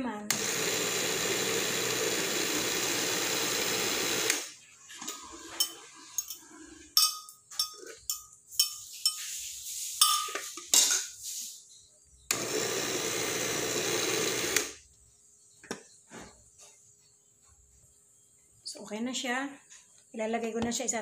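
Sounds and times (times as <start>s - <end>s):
blender motor running: 0.3s - 4.6s, 12.3s - 14.8s
clinks against glass jar: 7.0s - 9.4s, 10.0s - 11.1s.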